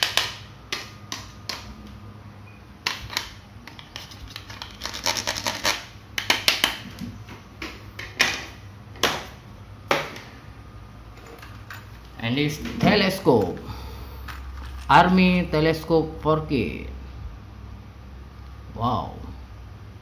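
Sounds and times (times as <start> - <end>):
plastic toys clicking on a table: 0.0 - 1.7.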